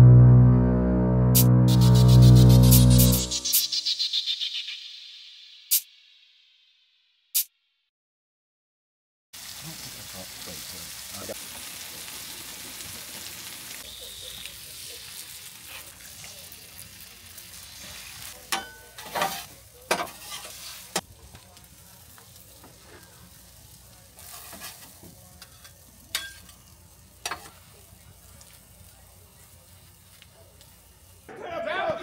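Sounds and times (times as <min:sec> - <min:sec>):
meat sizzling on a griddle: 0:09.4 - 0:31.3
metal spatula scraping griddle: 0:15.6 - 0:16.1, 0:17.7 - 0:21.0, 0:24.2 - 0:26.6.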